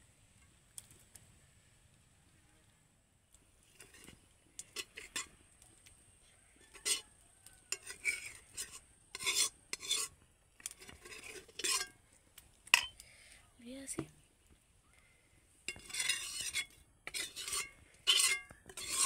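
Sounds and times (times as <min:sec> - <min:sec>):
metal spoon scraping a pot: 0:03.6 - 0:05.5, 0:06.6 - 0:12.0, 0:12.7 - 0:13.0, 0:15.7 - 0:19.0
spoon clinking against pot: 0:07.7 - 0:10.1, 0:15.7 - 0:19.0.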